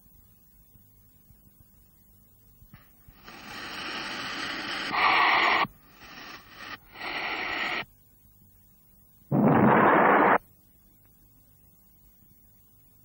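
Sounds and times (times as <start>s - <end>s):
cartoon hissing: 3.2s - 7.8s.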